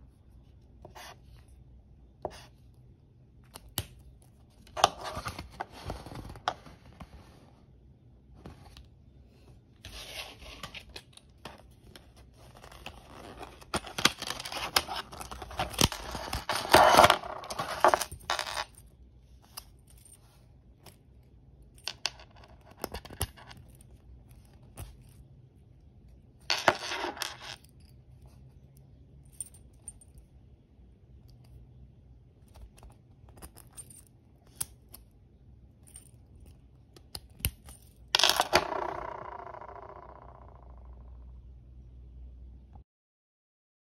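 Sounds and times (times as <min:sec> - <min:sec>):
rustling handling noise: 0:04.0 - 0:25.3
padlock and keys clinking: 0:10.7 - 0:39.1.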